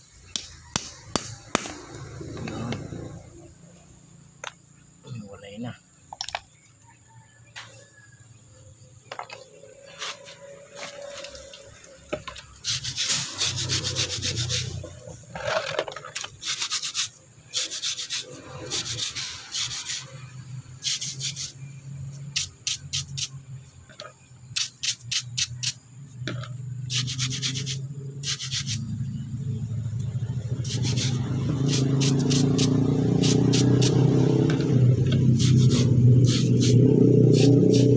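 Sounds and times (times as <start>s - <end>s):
brush scrubbing wet stone: 12.6s - 14.8s, 16.3s - 20.1s, 26.9s - 28.8s, 30.7s - 33.9s.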